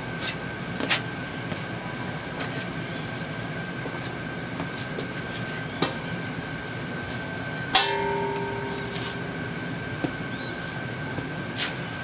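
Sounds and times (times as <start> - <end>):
steady low rumble: 0.0 - 11.6
metallic clang ringing: 7.7 - 10.0.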